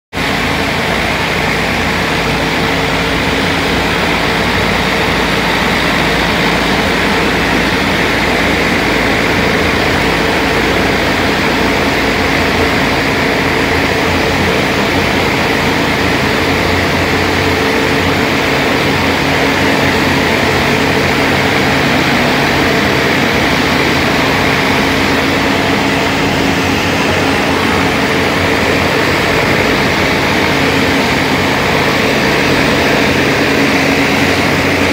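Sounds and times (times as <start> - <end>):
pressure washer engine droning: 0.1 - 34.9.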